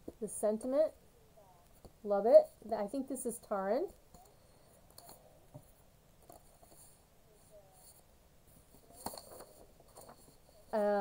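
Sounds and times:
paper rustling and tapping: 0:08.6 - 0:10.4.

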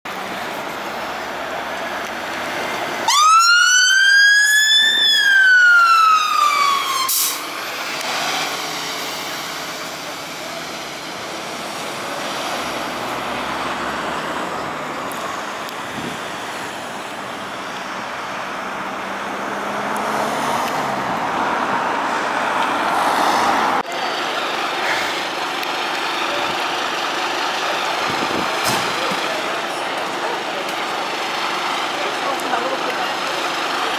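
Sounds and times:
diesel engine rumble: 0:00.1 - 0:33.9
street traffic: 0:00.1 - 0:33.9
fire engine siren wail: 0:01.0 - 0:17.6.

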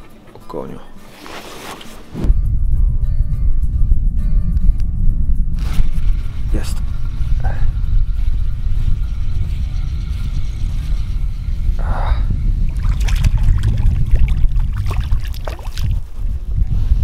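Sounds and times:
wind buffeting microphone: 0:02.2 - 0:17.0
fish splashing in water: 0:12.8 - 0:16.2.

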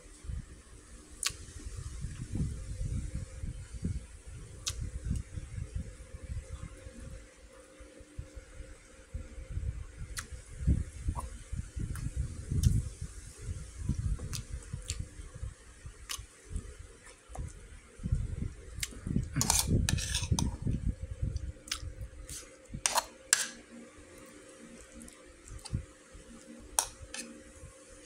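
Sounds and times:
metal spoon scraping a bowl: 0:19.4 - 0:20.6, 0:22.3 - 0:23.6, 0:26.8 - 0:27.4.

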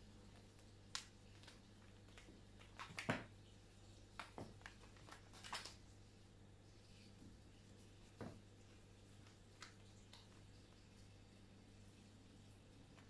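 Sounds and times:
faint steady hum: 0:00.0 - 0:13.0
kitten paws tapping on tiled floor: 0:00.3 - 0:03.4, 0:04.0 - 0:05.9, 0:09.1 - 0:11.0.

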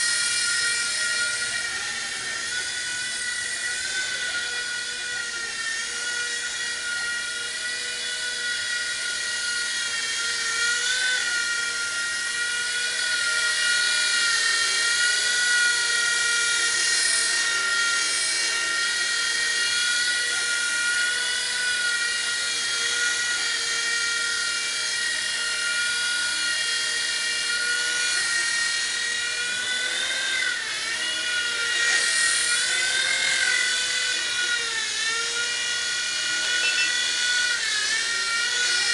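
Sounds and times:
toy helicopter motor whining: 0:00.0 - 0:38.9.

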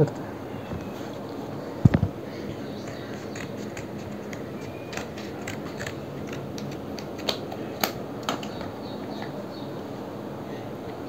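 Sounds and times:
scissors snipping plastic: 0:02.8 - 0:08.6.

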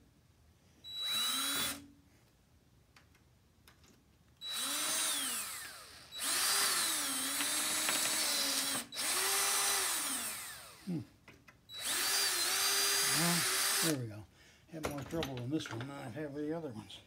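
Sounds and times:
cordless drill boring into screw: 0:00.9 - 0:01.8, 0:04.4 - 0:10.9, 0:11.7 - 0:14.0.

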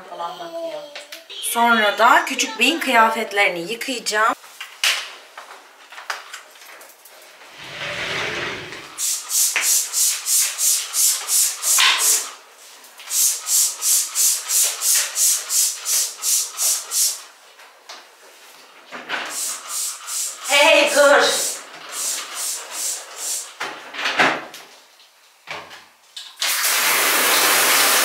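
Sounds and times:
spray bottle squirting: 0:26.4 - 0:28.0.

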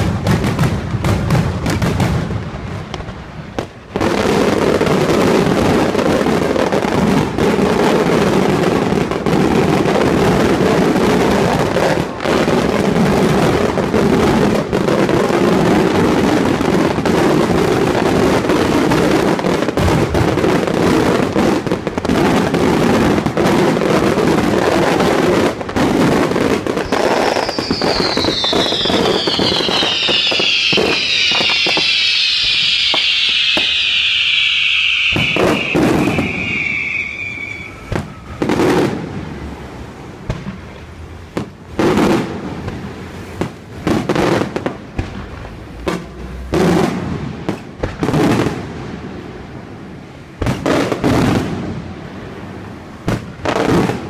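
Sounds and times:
fireworks bangs and crackling: 0:00.0 - 0:54.0
fireworks whistles falling in pitch: 0:26.6 - 0:39.0.

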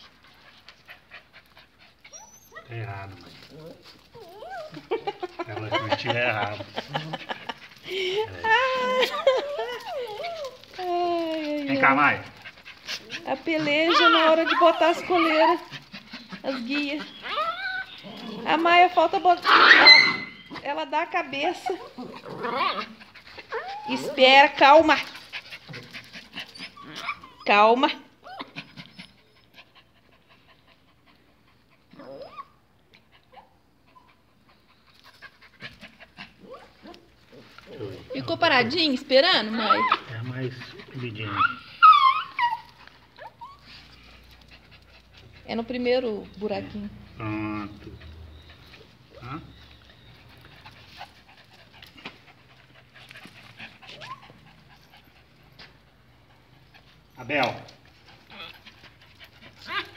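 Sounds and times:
dogs panting: 0:00.0 - 0:19.6, 0:20.3 - 0:59.9
dog whining: 0:02.0 - 0:06.6, 0:07.9 - 0:12.3, 0:12.9 - 0:18.8, 0:19.4 - 0:20.7, 0:21.6 - 0:24.8, 0:26.4 - 0:29.6, 0:31.9 - 0:34.2, 0:36.3 - 0:44.2, 0:46.1 - 0:51.2, 0:53.8 - 0:55.8, 0:58.2 - 0:58.8, 0:59.6 - 0:59.9
faint clicks and scuffs: 0:49.7 - 0:55.9.

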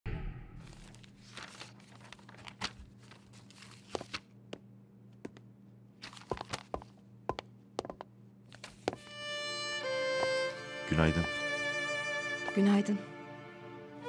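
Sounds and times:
papers rustling and shuffling: 0:00.6 - 0:04.3, 0:06.0 - 0:07.0, 0:08.5 - 0:08.9
footsteps on tiled floor: 0:03.8 - 0:09.1, 0:10.2 - 0:10.4, 0:12.4 - 0:12.9.

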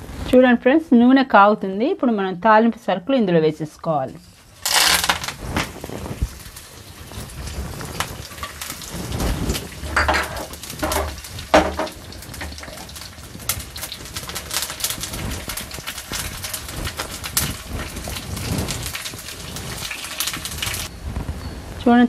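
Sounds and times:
spices sizzling in hot oil: 0:04.2 - 0:22.0
spices clattering into pan: 0:04.4 - 0:20.9.

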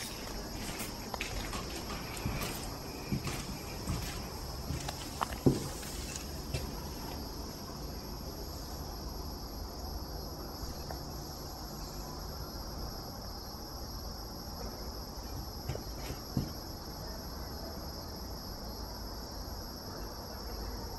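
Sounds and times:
crickets chirping: 0:00.0 - 0:20.9
faint knocks: 0:00.1 - 0:07.2.

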